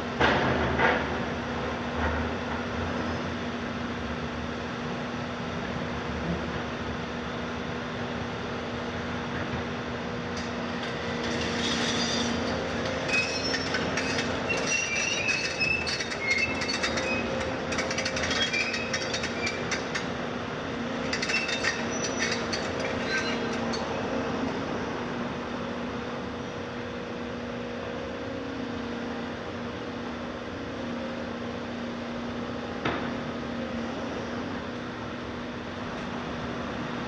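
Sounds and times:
excavator engine running: 0:09.2 - 0:25.2
steel tracks clanking and squealing: 0:10.3 - 0:25.4.

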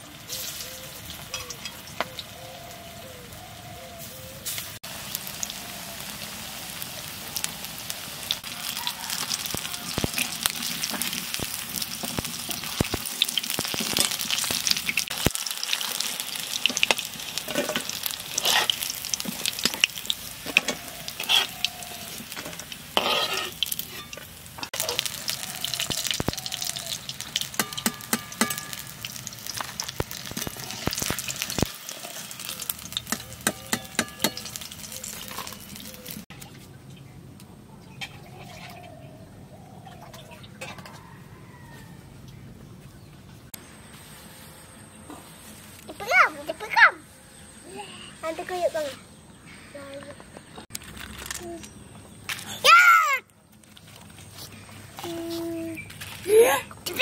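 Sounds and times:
food deep-frying in hot oil: 0:00.0 - 0:03.5, 0:04.4 - 0:36.3
metal spatula scraping a wok: 0:17.4 - 0:19.8, 0:20.4 - 0:25.1.

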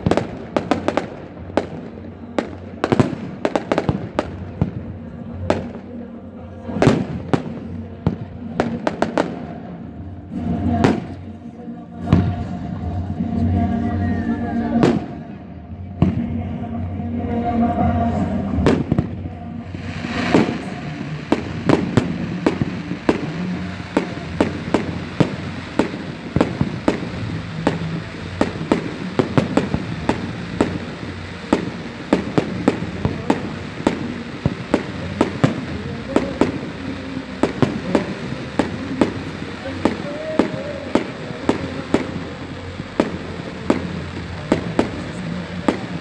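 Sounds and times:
fireworks bangs: 0:00.0 - 0:11.4, 0:12.0 - 0:16.6, 0:18.1 - 0:46.0
steady noisy rush: 0:00.0 - 0:46.0
firework whoosh: 0:18.5 - 0:46.0.

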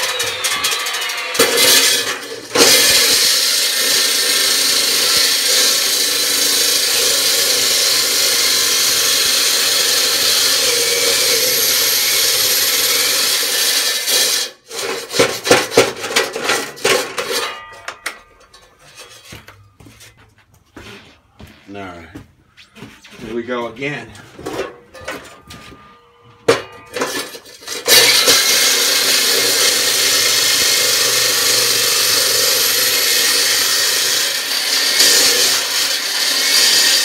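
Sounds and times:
electric saw cutting concrete: 0:00.0 - 0:14.8, 0:26.4 - 0:37.0.

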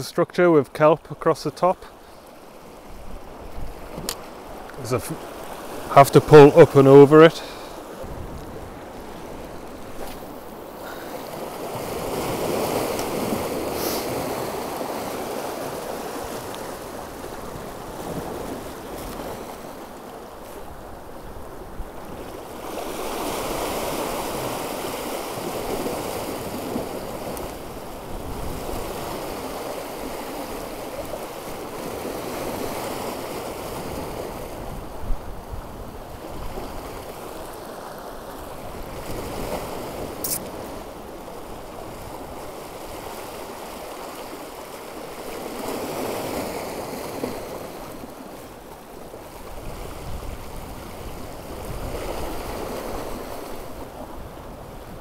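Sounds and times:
waves breaking over rocks: 0:00.4 - 0:55.0
short sharp tick: 0:40.2 - 0:40.5.

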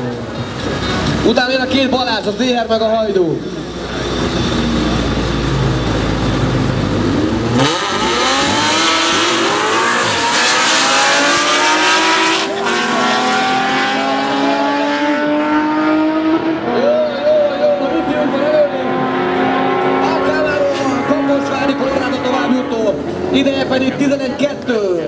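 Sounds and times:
engines idling rumble: 0:00.0 - 0:07.6, 0:19.9 - 0:25.0
engines accelerating at full throttle: 0:00.0 - 0:25.0.

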